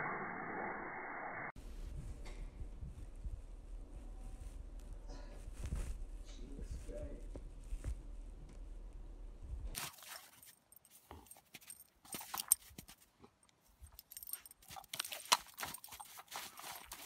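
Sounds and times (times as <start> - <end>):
dog digging in crunchy snow: 9.8 - 13.0, 14.6 - 17.0.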